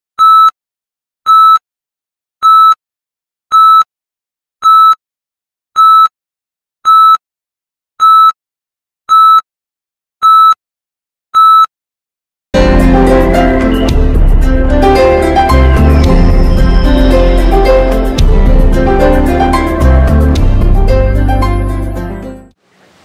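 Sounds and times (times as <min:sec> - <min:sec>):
electronic countdown beeps: 0:00.2 - 0:00.6, 0:01.3 - 0:01.6, 0:02.4 - 0:02.8, 0:03.5 - 0:03.9, 0:04.6 - 0:05.0, 0:05.8 - 0:06.1, 0:06.9 - 0:07.2, 0:08.0 - 0:08.4, 0:09.1 - 0:09.4, 0:10.2 - 0:10.6, 0:11.4 - 0:11.7.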